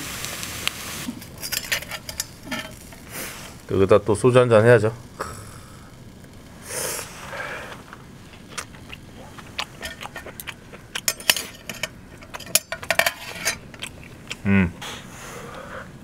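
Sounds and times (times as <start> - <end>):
metal cookware clinking: 1.1 - 3.0, 9.8 - 13.8
low voiced grunt: 14.4 - 14.8.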